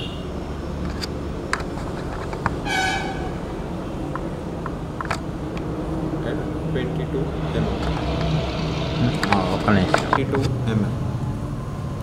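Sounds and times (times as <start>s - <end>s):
low background rumble: 2.4s - 12.0s
horn-like toot: 2.6s - 3.5s.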